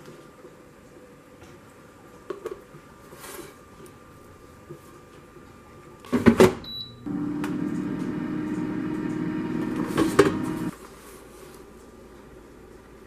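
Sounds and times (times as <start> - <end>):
air fryer beep: 6.6 - 10.7
fan whirring: 6.7 - 10.8.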